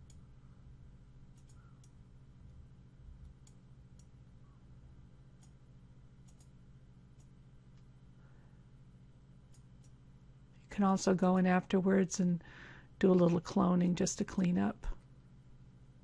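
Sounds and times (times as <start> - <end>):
steady low hum: 0.0 - 16.0
computer mouse clicks: 1.3 - 2.0, 6.2 - 6.6, 9.5 - 10.0.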